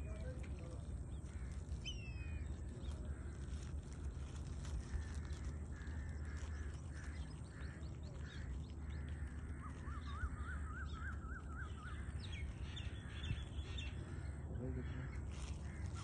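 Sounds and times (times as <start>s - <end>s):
steady low rumble: 0.0s - 16.0s
harsh bird calls: 5.1s - 16.0s.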